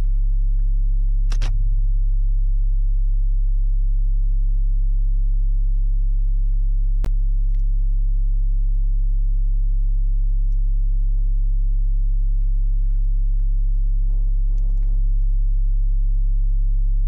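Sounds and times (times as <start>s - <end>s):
electrical mains hum: 0.0s - 17.0s
sharp click: 1.3s - 1.6s.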